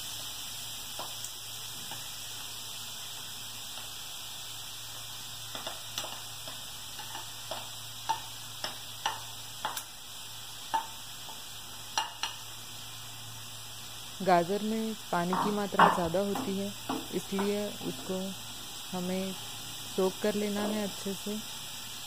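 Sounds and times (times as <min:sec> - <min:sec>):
steady hiss: 0:00.0 - 0:22.0
spatula tapping a bowl: 0:05.5 - 0:09.8, 0:10.7 - 0:12.4, 0:15.3 - 0:17.6.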